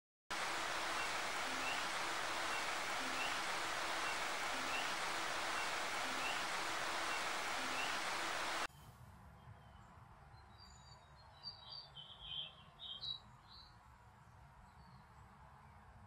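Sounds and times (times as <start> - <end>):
steady rushing noise: 0.3 - 8.7.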